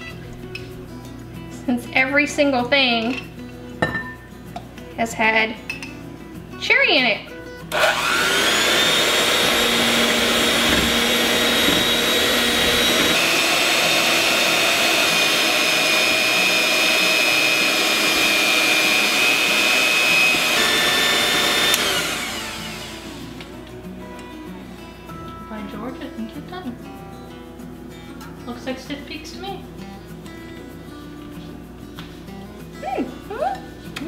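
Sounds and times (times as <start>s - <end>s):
electric hand mixer whining: 7.7s - 23.5s.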